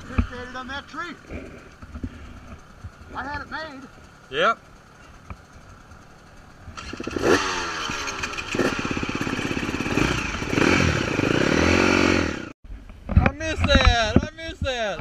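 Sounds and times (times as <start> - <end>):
dirt bike engine revving: 6.6 - 12.6.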